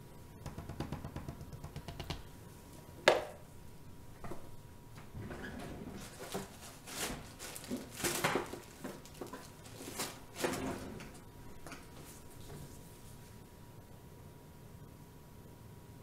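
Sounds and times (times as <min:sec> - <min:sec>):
faint steady hum: 0:00.0 - 0:16.0
plastic rustling: 0:05.6 - 0:13.4.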